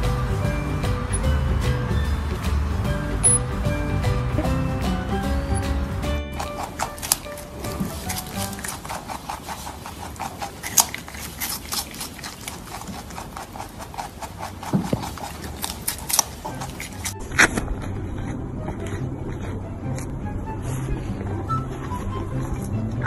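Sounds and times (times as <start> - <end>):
rabbit crunching vegetables: 0.0 - 23.0
animal munching dry cracker: 6.2 - 23.0.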